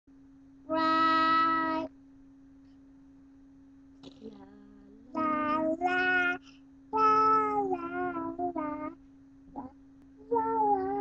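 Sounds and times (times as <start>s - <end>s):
faint steady hum: 0.1s - 11.0s
boy singing long notes: 4.3s - 6.4s, 7.0s - 9.0s, 9.6s - 11.0s.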